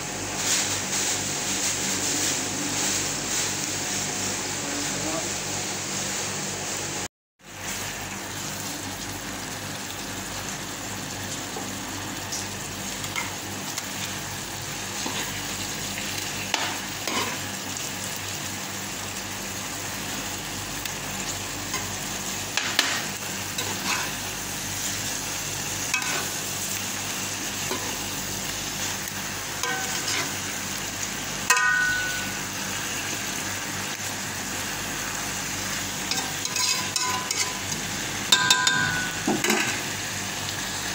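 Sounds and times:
stew sizzling in pan: 0:00.0 - 0:40.9
spatula scraping pan: 0:16.6 - 0:17.4, 0:22.6 - 0:24.2, 0:25.9 - 0:26.4, 0:29.6 - 0:30.5, 0:36.1 - 0:37.8.

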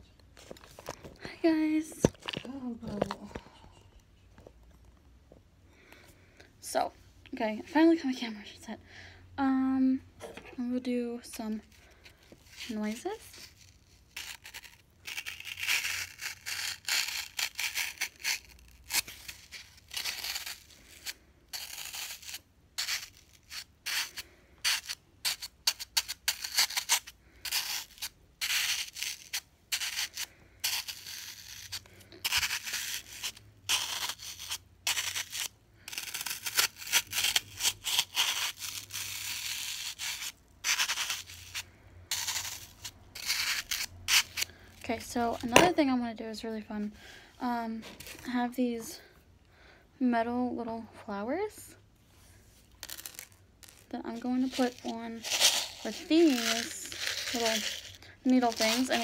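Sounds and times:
fork scraping floral foam: 0:10.2 - 0:45.7, 0:52.7 - 0:59.0.

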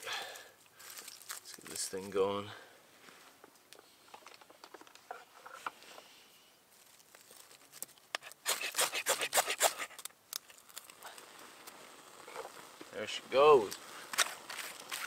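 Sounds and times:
sharp scraping strokes: 0:08.2 - 0:15.0.

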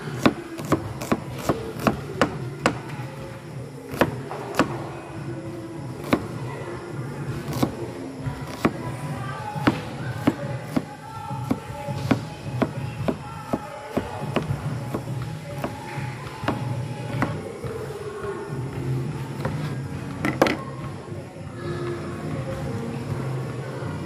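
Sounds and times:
cleaver chopping on cutting board: 0:07.5 - 0:07.7, 0:08.5 - 0:08.8, 0:09.6 - 0:10.9.

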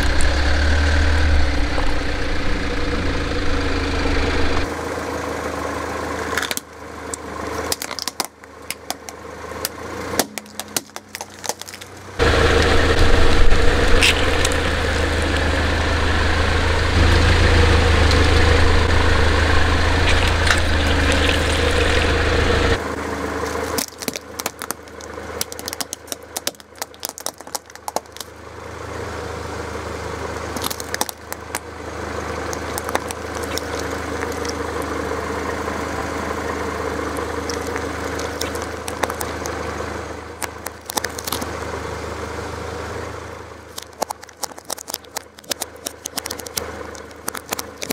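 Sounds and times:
car engine running: 0:00.0 - 0:47.9
deeper engine sound: 0:00.0 - 0:47.9
plastic cracking and crunching: 0:07.7 - 0:12.7, 0:23.4 - 0:28.3, 0:30.6 - 0:31.7, 0:32.4 - 0:34.9, 0:37.4 - 0:39.6, 0:40.4 - 0:41.5, 0:43.7 - 0:47.9.

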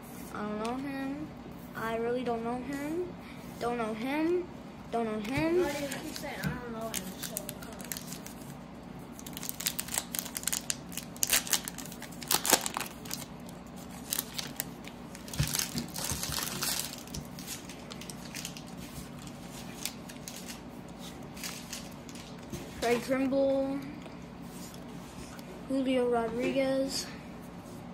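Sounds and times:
foil wrapper crinkling: 0:05.8 - 0:08.5, 0:09.2 - 0:22.5.

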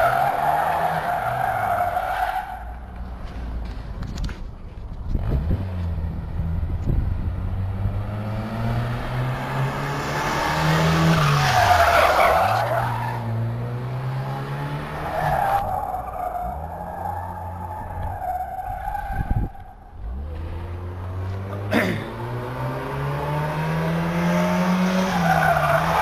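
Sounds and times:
tyres squealing on paving: 0:00.0 - 0:02.8, 0:11.1 - 0:13.3, 0:15.0 - 0:19.8, 0:25.0 - 0:26.0
car engine revving high: 0:07.4 - 0:17.9, 0:20.0 - 0:26.0.

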